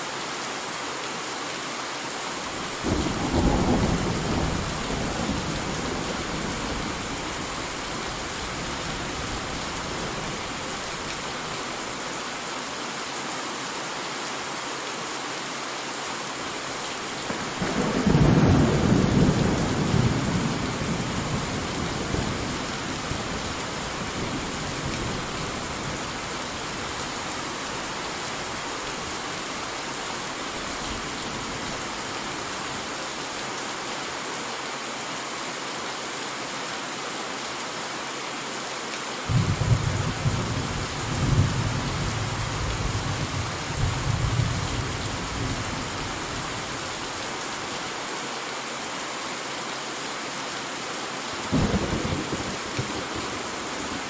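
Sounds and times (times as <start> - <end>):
steady rain: 0.0 - 54.0
thunder rumbling: 39.3 - 46.2, 51.5 - 53.4.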